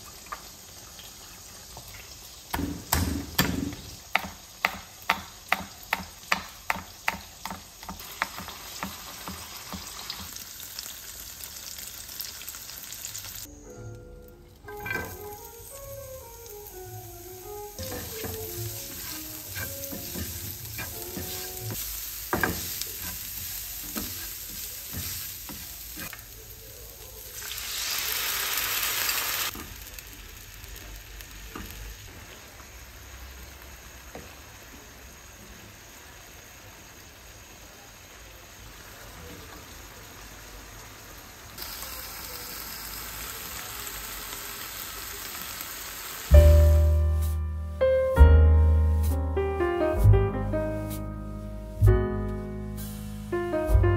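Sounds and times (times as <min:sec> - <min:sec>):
onions sizzling in oil: 0:00.0 - 0:13.8, 0:14.6 - 0:47.4, 0:52.6 - 0:53.9
spatula tapping and scraping pan: 0:02.6 - 0:09.9.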